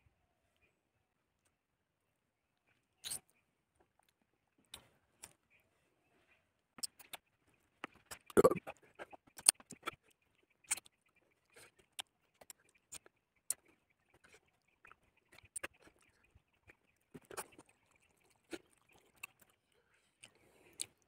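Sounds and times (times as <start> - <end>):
wet chewing smacks and clicks: 6.8 - 7.2, 7.8 - 21.0.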